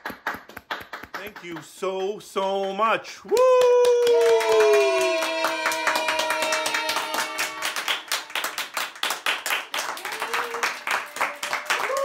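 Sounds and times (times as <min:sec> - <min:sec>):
group clapping fast: 0:00.0 - 0:02.2, 0:03.3 - 0:12.0
rising cheer: 0:03.3 - 0:08.8, 0:09.7 - 0:12.0.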